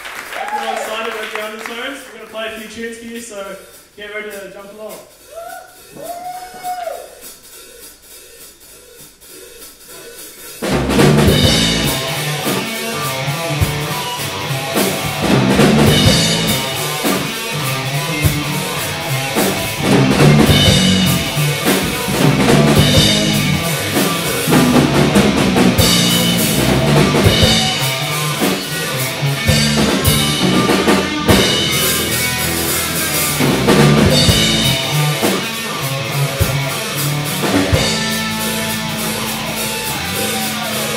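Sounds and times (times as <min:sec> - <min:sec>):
live rock band playing: 0:10.6 - 0:40.9.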